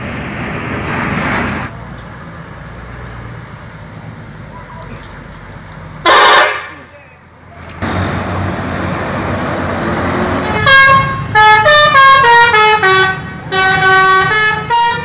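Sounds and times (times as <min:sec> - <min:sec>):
multi-tone bus horn tune: 0:06.0 - 0:06.9, 0:10.4 - 0:15.0.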